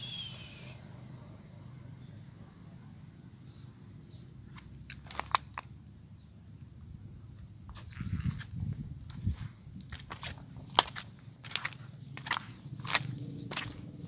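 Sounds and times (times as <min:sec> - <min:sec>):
footsteps crunching on rubble: 0:04.9 - 0:05.6, 0:07.7 - 0:14.0.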